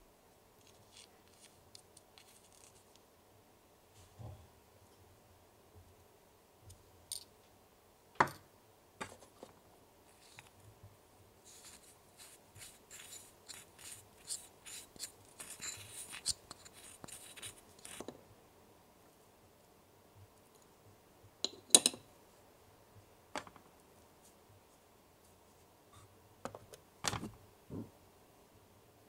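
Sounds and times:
plastic spatula scraping bowl: 0:11.5 - 0:18.0.

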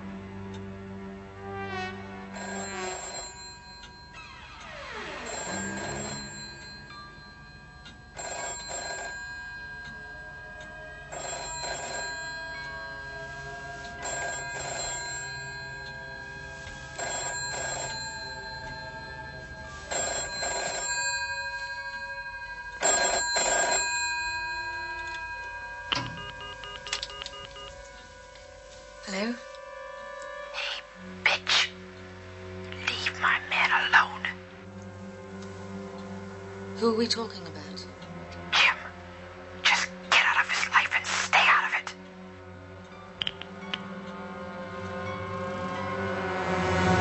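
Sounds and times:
telephone ringing: 0:02.4 - 0:28.2.

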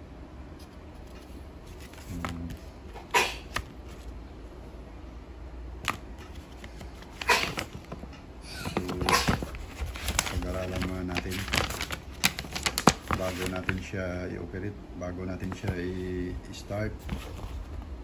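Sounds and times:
steady low hum: 0:00.0 - 0:18.0
paper rustling and crinkling: 0:00.6 - 0:04.1, 0:05.8 - 0:14.0, 0:15.4 - 0:16.3, 0:16.9 - 0:18.0.

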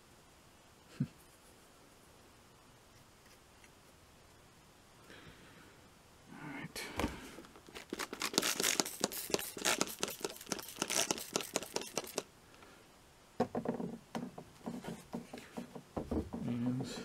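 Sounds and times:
plastic shaker bottle rattling: 0:07.7 - 0:12.3
soft knocks: 0:13.4 - 0:17.0.

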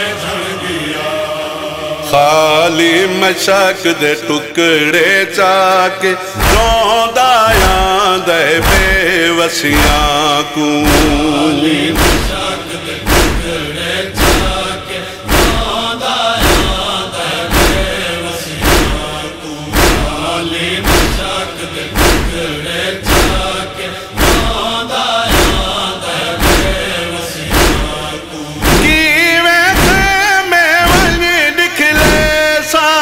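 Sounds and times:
men chanting in unison: 0:00.0 - 0:33.0
chest-beating thumps: 0:06.4 - 0:32.5.

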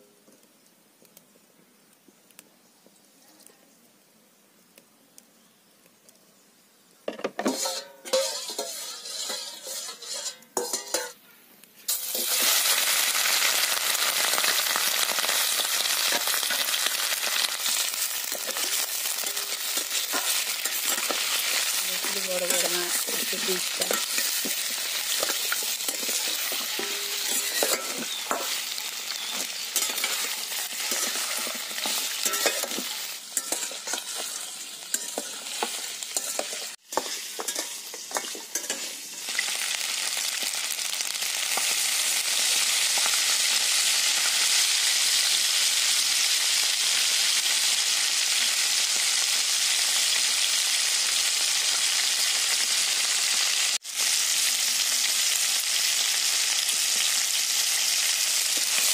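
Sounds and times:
steel spoon clinking against pan: 0:07.5 - 0:11.2, 0:18.3 - 0:28.6, 0:29.2 - 0:38.9
meat sizzling in hot oil: 0:07.6 - 0:11.1, 0:11.9 - 0:58.9.

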